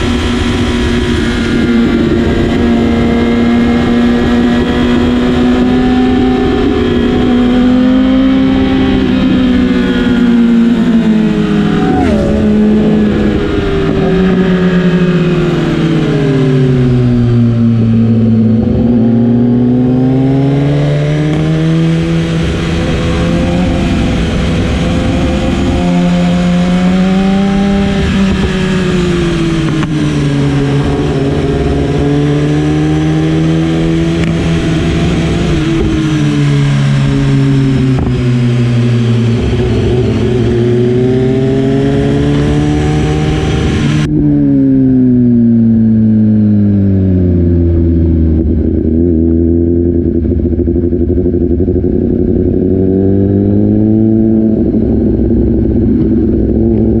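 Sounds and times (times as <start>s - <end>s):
wind rush over microphone: 0.0s - 19.0s, 21.2s - 44.6s
motorcycle engine revving: 0.0s - 57.0s.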